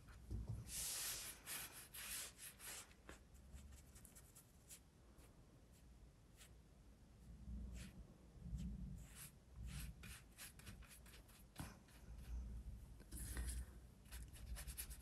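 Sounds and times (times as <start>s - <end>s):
paintbrush rubbing on paper: 0.6s - 4.8s, 8.6s - 12.3s, 13.1s - 15.0s.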